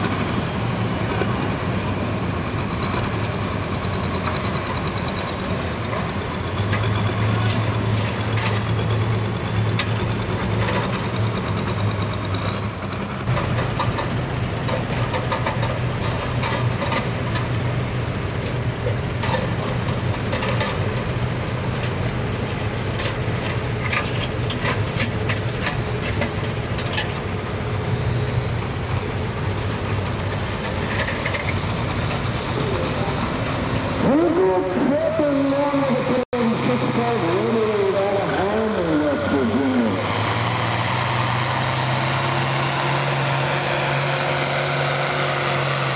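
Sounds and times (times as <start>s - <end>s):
diesel engines idling: 0.0s - 45.9s
knocks and clatter: 2.9s - 17.7s, 18.4s - 27.3s, 30.0s - 32.3s.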